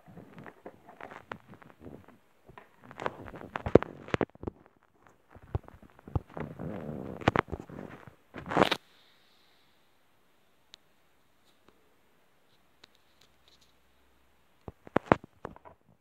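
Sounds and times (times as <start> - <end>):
plastic tub handling noise: 0.0 - 8.8, 14.7 - 16.0.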